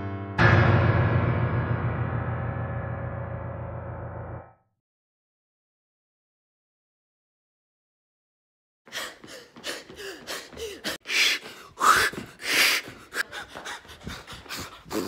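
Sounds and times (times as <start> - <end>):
people gasping and panting: 8.9 - 15.0.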